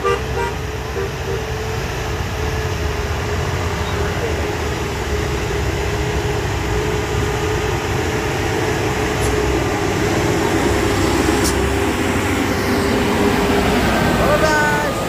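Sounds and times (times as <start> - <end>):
truck engine rumbling: 0.0 - 15.0.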